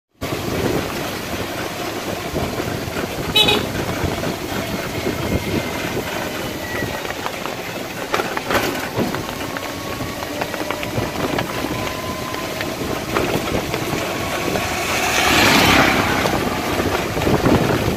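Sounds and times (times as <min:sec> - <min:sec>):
vehicle driving on wet road: 0:00.1 - 0:17.9
horn toot: 0:03.3 - 0:03.8.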